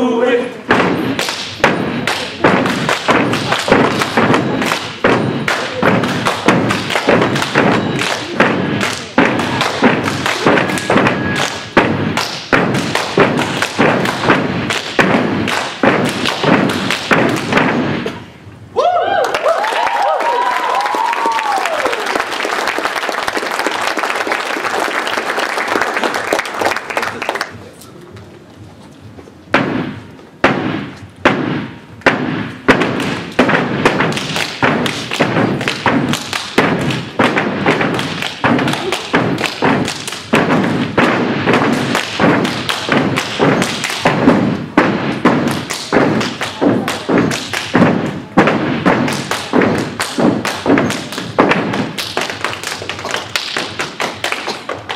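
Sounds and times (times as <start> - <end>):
foot stomps on stage floor: 0.7 - 18.2, 29.5 - 54.9
hand claps: 1.1 - 17.8, 19.2 - 27.6, 32.7 - 54.9
whoop: 18.8 - 22.1
audience cheering: 18.8 - 27.3.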